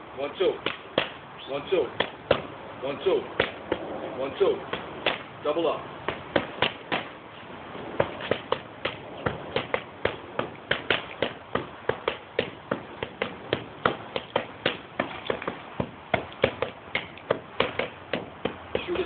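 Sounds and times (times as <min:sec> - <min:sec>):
punches slapping focus mitts: 0:00.6 - 0:01.2, 0:02.0 - 0:02.5, 0:03.4 - 0:03.9, 0:04.7 - 0:05.3, 0:06.1 - 0:07.2, 0:08.0 - 0:19.0.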